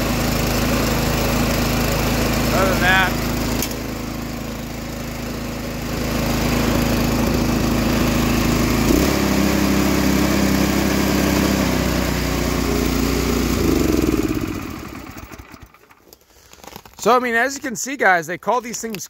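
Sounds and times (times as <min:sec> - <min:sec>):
small engine running: 0:00.0 - 0:16.2.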